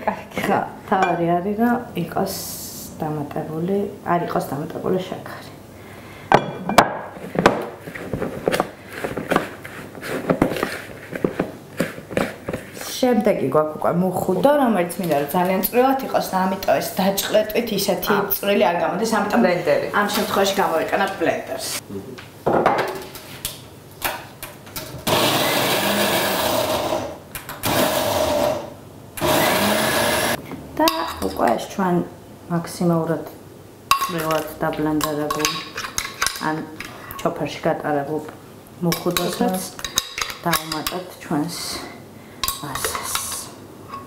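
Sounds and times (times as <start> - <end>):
blender chopping in bursts: 25.0 - 30.4
bowls and utensils clicking: 33.9 - 37.2, 38.9 - 41.1, 42.4 - 44.0.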